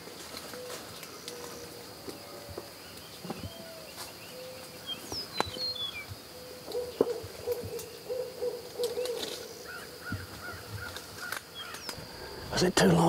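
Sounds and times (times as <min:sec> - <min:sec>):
small birds chirping: 0:00.2 - 0:13.0
owl hooting: 0:05.6 - 0:12.6.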